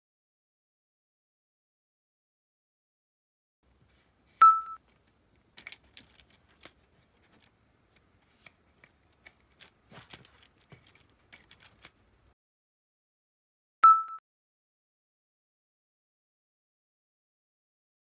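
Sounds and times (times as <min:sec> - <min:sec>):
short bell-like ringing tone: 0:04.4 - 0:04.8, 0:13.8 - 0:14.2.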